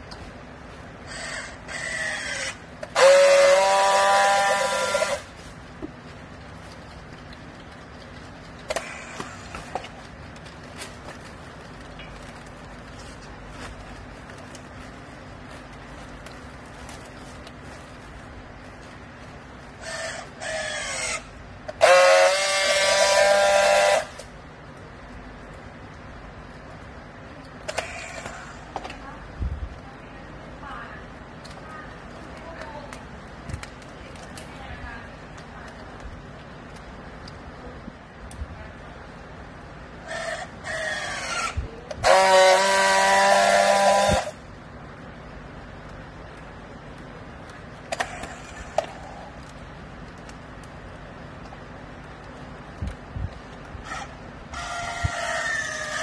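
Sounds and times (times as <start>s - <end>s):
strapping tool buzzing: 1.1s - 5.3s, 19.8s - 24.3s, 40.1s - 44.4s.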